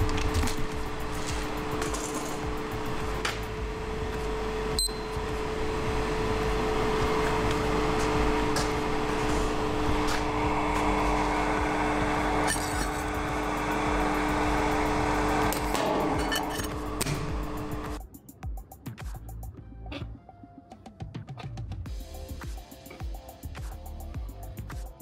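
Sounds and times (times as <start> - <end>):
dryer fan whirring: 0.0 - 18.0
low two-note hum: 0.0 - 18.0
high electronic beep: 4.7 - 5.2.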